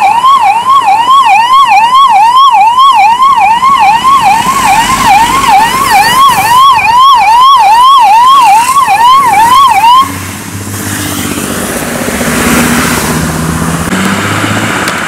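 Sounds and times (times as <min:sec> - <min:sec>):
ambulance siren wailing: 0:00.0 - 0:10.1
car passing close by: 0:10.1 - 0:15.0.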